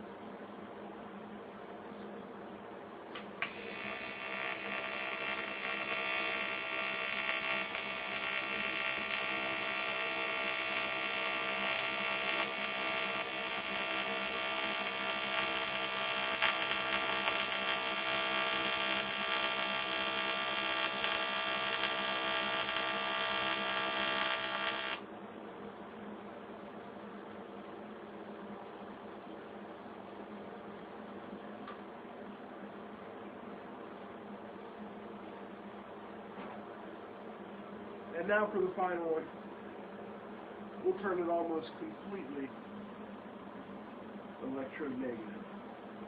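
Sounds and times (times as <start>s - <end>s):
welding arc buzzing hum: 3.1s - 25.1s.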